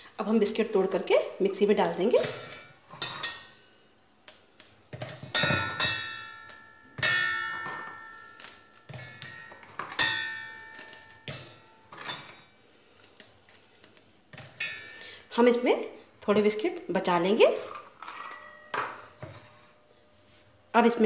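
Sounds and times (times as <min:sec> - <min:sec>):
biscuit clanging in metal jar: 0:04.9 - 0:12.5.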